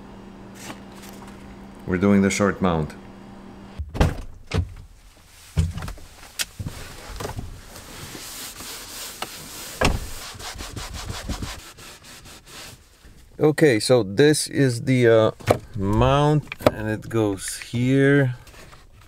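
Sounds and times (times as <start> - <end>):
plastic parts rubbing and scraping: 6.6 - 12.8.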